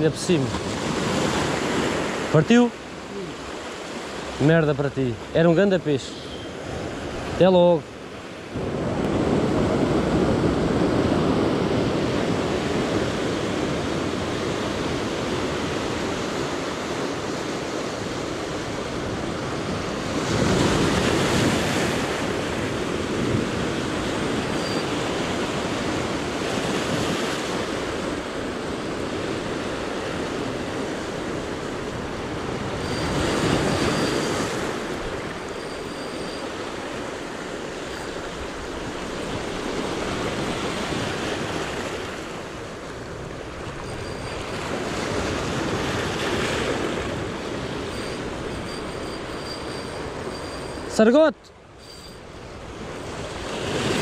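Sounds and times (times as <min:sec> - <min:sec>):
sea surf washing on shore: 0:00.0 - 0:54.0.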